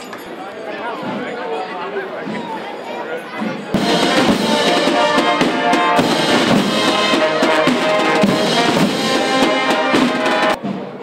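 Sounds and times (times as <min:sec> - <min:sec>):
snare and bass drums: 0:03.7 - 0:11.0
brass playing a march tune: 0:03.8 - 0:10.6.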